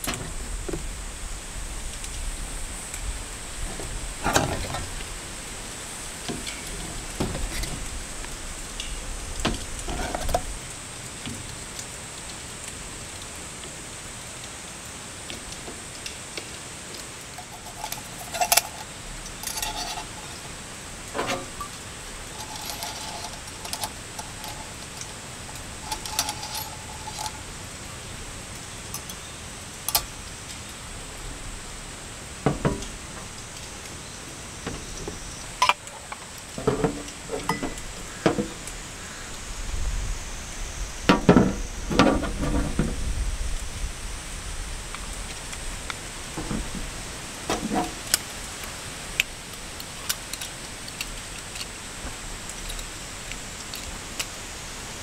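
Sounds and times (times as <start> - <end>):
rain on tent: 0.0 - 55.0
wind on tent: 0.0 - 55.0
metal mugs clinking on hooks: 17.3 - 20.6, 21.2 - 27.4.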